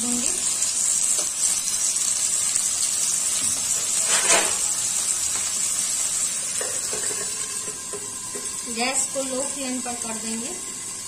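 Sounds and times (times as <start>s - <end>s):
potatoes sizzling in hot oil: 0.0s - 11.0s
scrape in pan: 3.7s - 5.4s.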